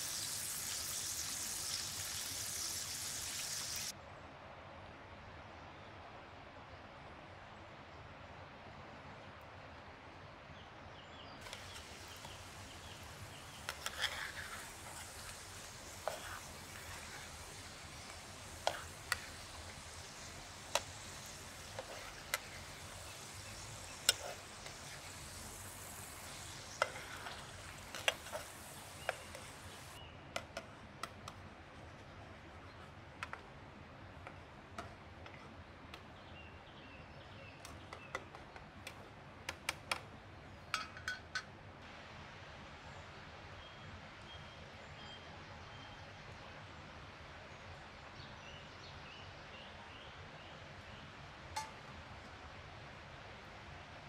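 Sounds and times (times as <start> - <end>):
food sizzling in oil: 0.0 - 3.9, 11.4 - 30.0
metal utensil scraping pan: 11.4 - 30.0.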